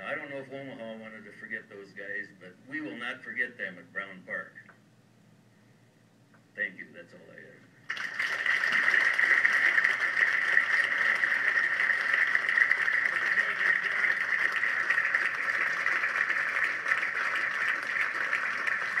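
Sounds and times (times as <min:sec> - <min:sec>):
audience applauding: 0:07.9 - 0:19.0.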